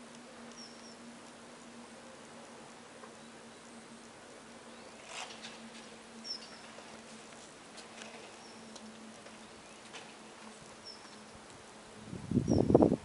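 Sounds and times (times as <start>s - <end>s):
bird chirping: 0.5s - 1.0s, 6.2s - 6.8s, 10.8s - 11.2s.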